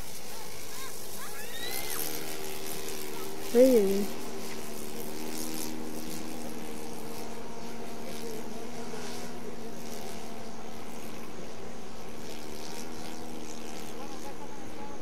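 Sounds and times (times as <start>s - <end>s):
model airplane engine droning: 0.0s - 15.0s.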